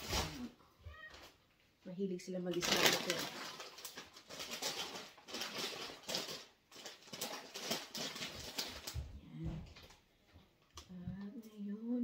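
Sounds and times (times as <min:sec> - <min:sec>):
plastic bags rustling and crinkling: 0:00.0 - 0:01.4, 0:02.3 - 0:10.0.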